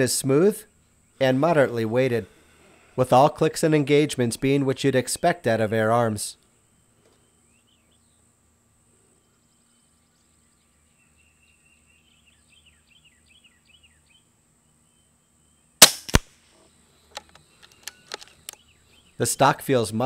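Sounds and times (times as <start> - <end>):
air rifle shot crack: 15.8 - 16.4.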